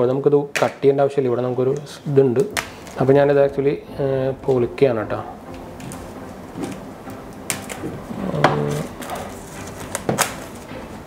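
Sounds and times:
plastic wrap crinkling: 1.8 - 3.6, 5.5 - 10.8.

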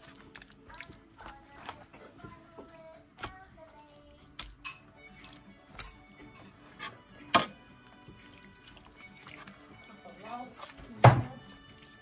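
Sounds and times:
water splashing in sink: 0.0 - 5.4, 7.9 - 12.0.

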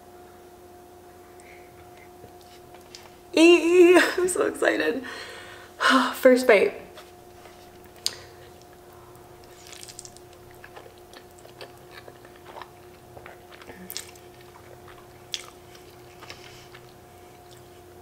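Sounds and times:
faint steady hum: 0.0 - 18.0
person chewing with wet smacks: 1.4 - 3.1, 7.4 - 18.0.

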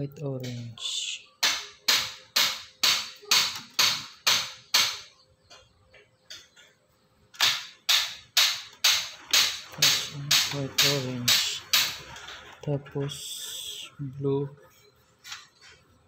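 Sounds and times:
sharp knocks: 1.4 - 5.6, 6.3 - 12.3.

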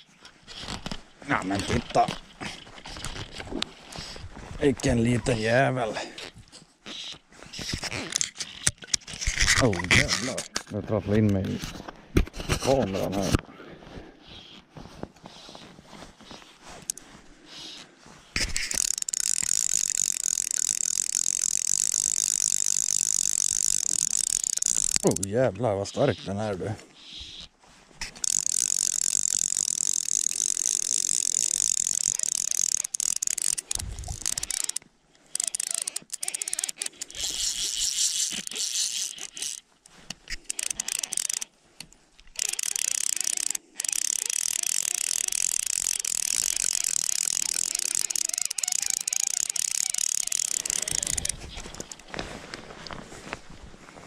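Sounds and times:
fishing reel ratchet buzzing: 6.2 - 10.6, 16.8 - 17.8, 18.4 - 25.3, 27.0 - 52.1.

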